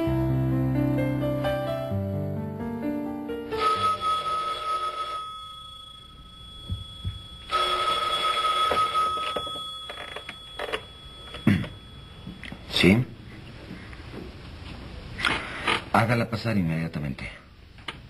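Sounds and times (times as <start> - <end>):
telephone bell ringing: 3.4 - 12.8.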